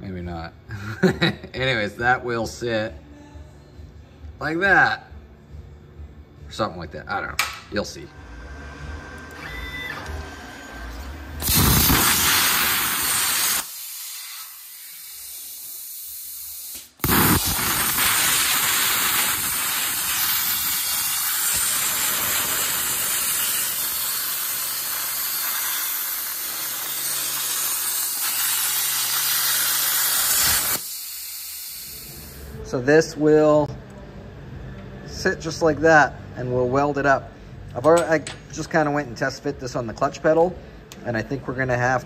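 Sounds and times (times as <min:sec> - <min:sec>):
cutting torch hissing: 0:11.3 - 0:32.6.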